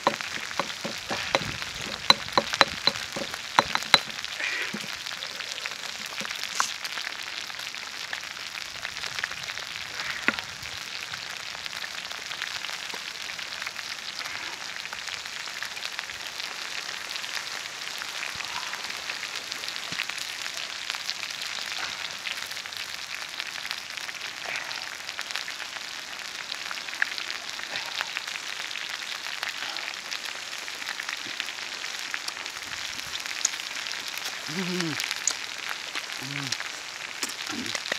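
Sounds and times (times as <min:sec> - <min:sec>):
crackling hiss: 0:00.0 - 0:37.9.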